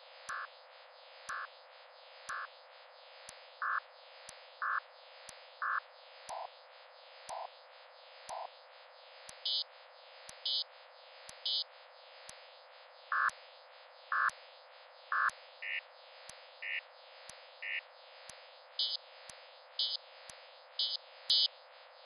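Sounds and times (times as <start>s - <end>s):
faint steady hiss of tones: 0.0s - 22.0s
scan clicks: 20.8s - 21.5s.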